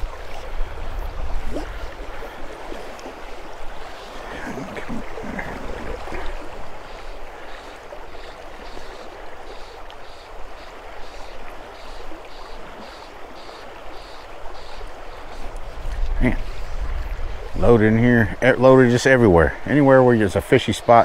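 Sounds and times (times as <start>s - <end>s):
river water rushing: 0.0s - 20.3s.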